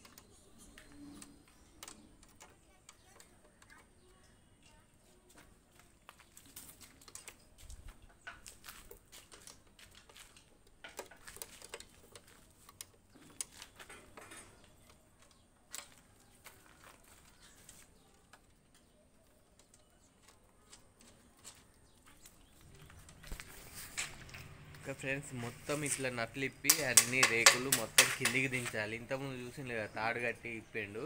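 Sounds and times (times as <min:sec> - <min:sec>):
metal clicks of nut on bolt: 0:26.6 - 0:28.8.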